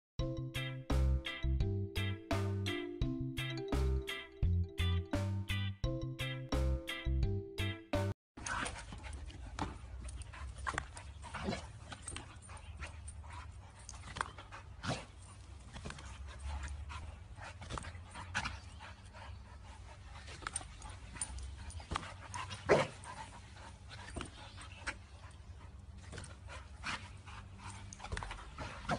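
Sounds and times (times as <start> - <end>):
dogs panting: 8.4 - 28.9.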